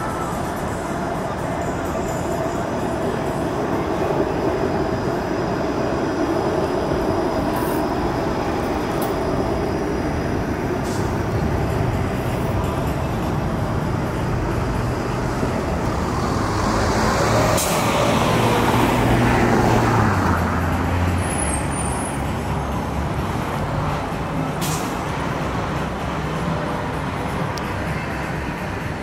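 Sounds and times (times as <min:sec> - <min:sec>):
bus engine passing: 0:00.0 - 0:29.0
streetcar and traffic noise: 0:00.0 - 0:29.0
air brake hisses: 0:10.8 - 0:11.3, 0:17.4 - 0:18.1, 0:24.6 - 0:25.1.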